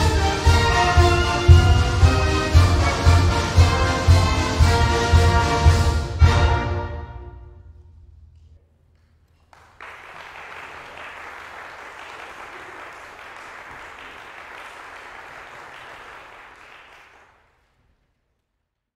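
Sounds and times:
audience applauding: 9.2 - 17.7.

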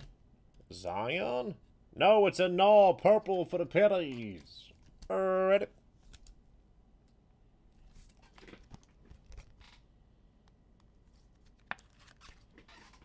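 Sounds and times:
rustling of card packaging: 11.0 - 13.0.

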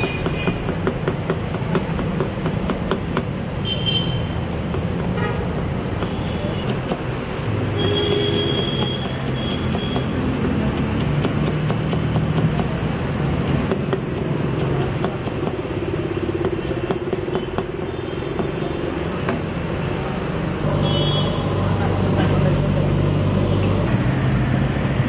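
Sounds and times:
knife chopping on wooden block: 0.0 - 3.4, 4.4 - 19.5
road traffic: 0.0 - 25.0.

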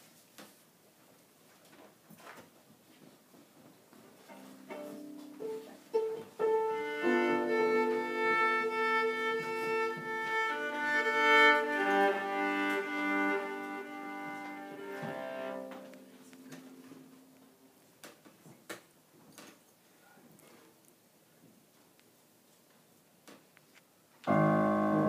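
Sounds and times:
soft piano: 4.2 - 17.6, 24.3 - 25.0
violin playing long notes: 4.3 - 17.1.

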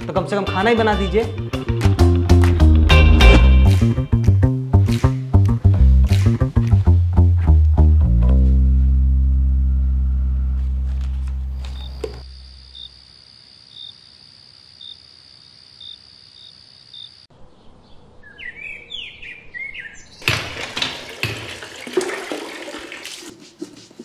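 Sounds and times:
birds chirping: 17.4 - 20.3
water splashing onto wet floor: 20.2 - 23.7.

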